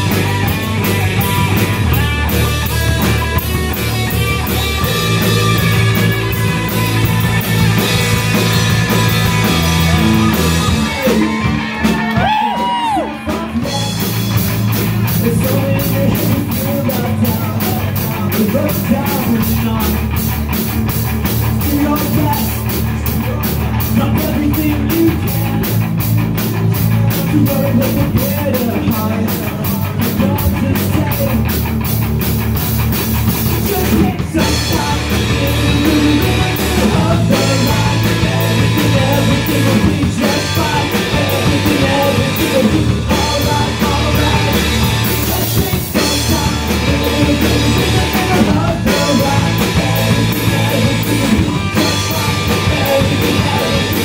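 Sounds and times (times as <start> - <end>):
bass guitar: 0.0 - 54.0
distorted electric guitar: 0.0 - 54.0
person singing: 7.8 - 14.4, 15.0 - 20.2, 33.5 - 54.0.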